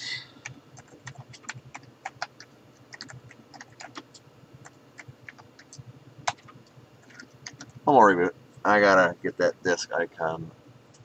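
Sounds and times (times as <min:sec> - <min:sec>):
typing on computer keyboard: 0:00.8 - 0:07.7.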